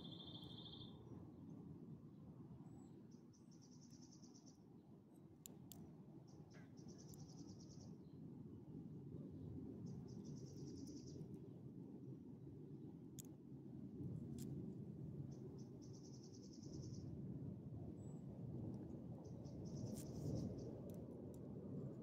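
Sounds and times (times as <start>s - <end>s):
cricket chirping: 0.0s - 1.0s.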